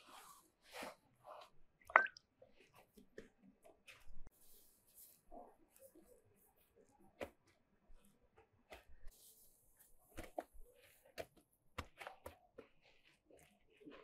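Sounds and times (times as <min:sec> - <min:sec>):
hands slapping bread dough: 0:10.0 - 0:14.0.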